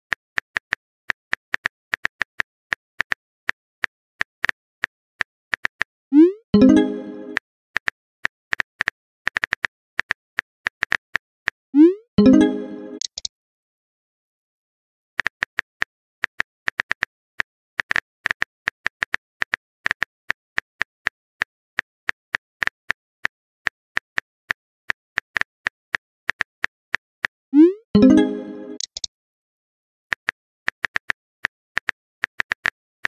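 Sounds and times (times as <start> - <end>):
phone keyboard typing clicks: 28.0 - 29.1.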